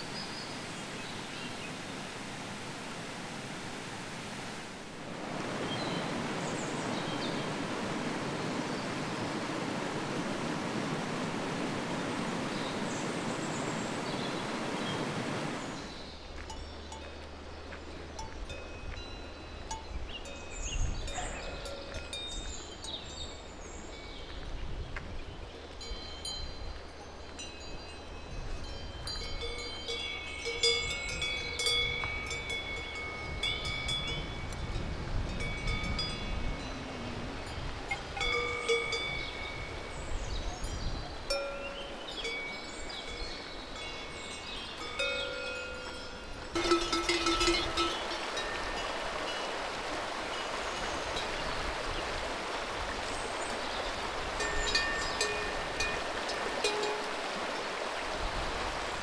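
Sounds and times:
waterfall rushing water: 0.0 - 19.6, 29.2 - 59.0
small metal bells jingling: 25.9 - 34.8, 37.5 - 39.8, 41.3 - 49.0, 54.4 - 57.1.

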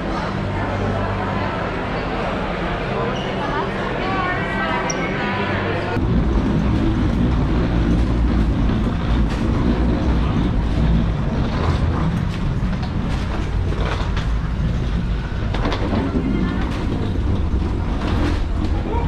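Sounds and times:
suitcase wheels rumbling: 6.0 - 19.0.

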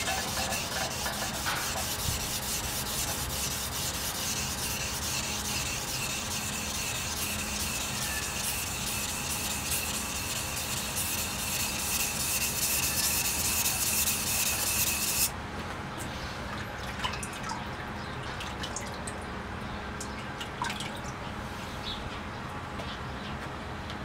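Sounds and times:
knife scraping on whetstone: 0.0 - 15.3
small water drips: 16.5 - 21.2.

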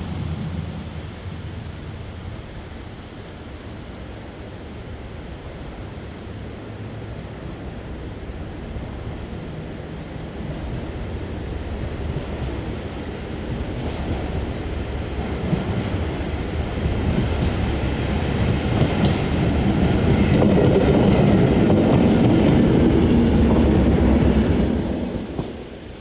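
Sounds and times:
diesel train passing: 0.0 - 26.0.

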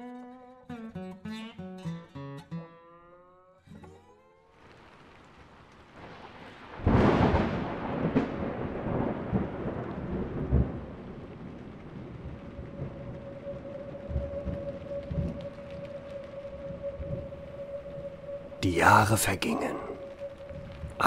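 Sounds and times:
rain falling: 4.5 - 21.0
thunder rumbling: 5.9 - 21.0.

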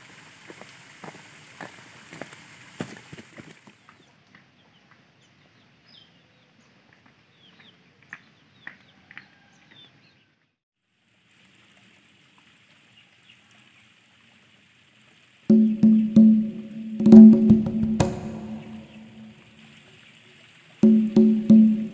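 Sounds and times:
birds chirping: 3.7 - 10.4, 15.5 - 19.6
music with wood-block beat: 15.5 - 19.4, 20.8 - 21.9
short sharp calls: 15.5 - 19.6
steady high hiss: 15.5 - 20.0, 20.8 - 21.9.

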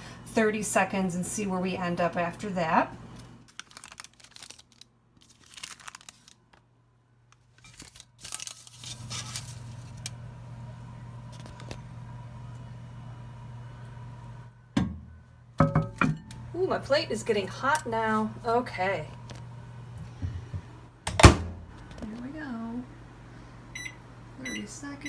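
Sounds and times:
microwave oven humming: 0.0 - 3.5, 6.7 - 25.0
paper towels rustling: 3.5 - 6.6, 7.4 - 10.0.

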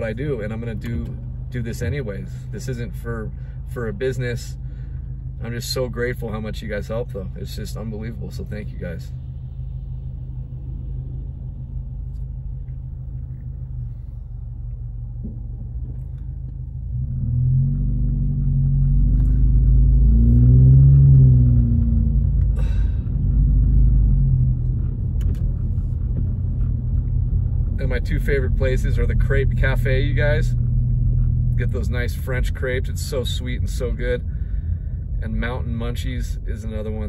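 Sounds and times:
car engine from inside cabin: 0.0 - 37.0
road rumble: 0.0 - 37.0.

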